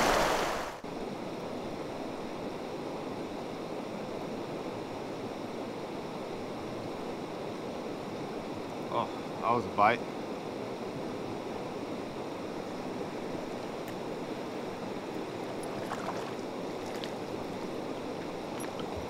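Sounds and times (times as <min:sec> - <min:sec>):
creek water flowing: 0:00.0 - 0:00.8, 0:12.4 - 0:19.0.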